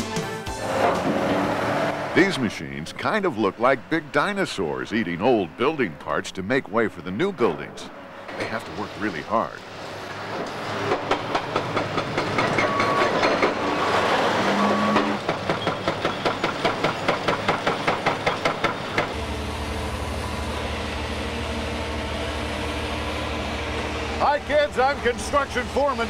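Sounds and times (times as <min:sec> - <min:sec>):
excavator engine droning: 0:00.4 - 0:26.0.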